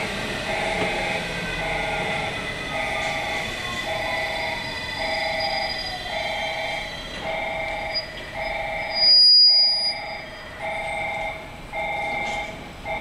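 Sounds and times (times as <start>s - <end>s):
shrill whistle blast: 1.9s - 11.2s
electronic two-tone beep: 7.3s - 10.2s.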